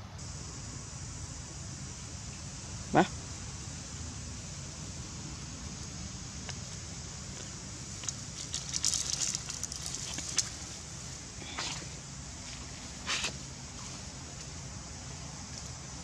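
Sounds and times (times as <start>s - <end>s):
low background rumble: 0.0s - 16.0s
dry leaves and twigs crackling: 5.7s - 14.6s.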